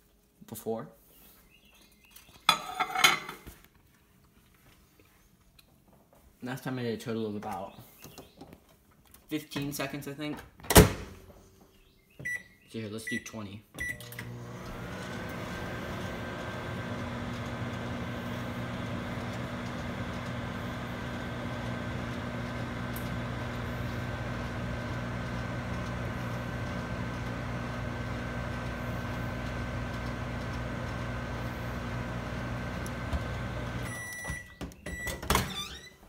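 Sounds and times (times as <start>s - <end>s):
microwave oven humming: 13.8s - 35.0s.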